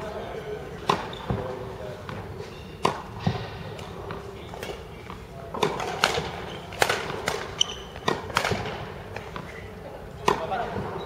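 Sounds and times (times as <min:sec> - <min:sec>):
rackets hitting shuttlecock: 0:02.1 - 0:09.5, 0:10.2 - 0:10.9.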